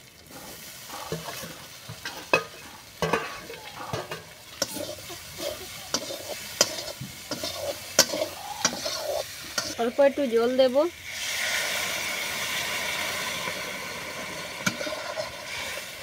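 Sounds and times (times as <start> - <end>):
vegetables sizzling in hot oil: 0.0 - 16.0
wooden stick scraping a pan: 0.3 - 9.9, 14.6 - 15.8.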